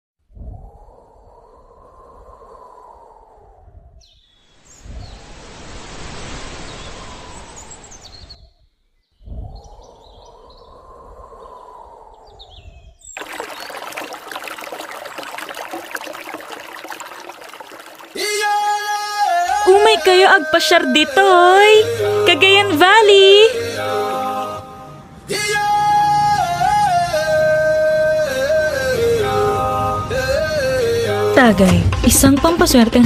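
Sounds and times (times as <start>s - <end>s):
rippling water: 13.2s - 20.3s.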